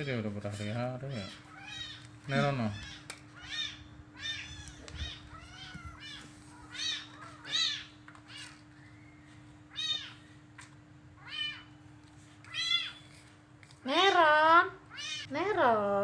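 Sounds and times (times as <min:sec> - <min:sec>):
faint steady hum: 0:00.0 - 0:16.0
kittens mewing: 0:00.5 - 0:08.8, 0:09.6 - 0:10.4, 0:11.1 - 0:11.8, 0:12.4 - 0:13.2, 0:14.8 - 0:15.3.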